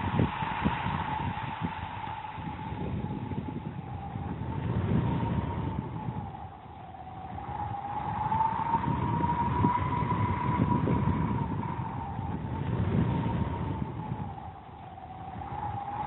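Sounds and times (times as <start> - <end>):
high whistling tone: 0.0 - 16.0
low rumble: 0.0 - 16.0.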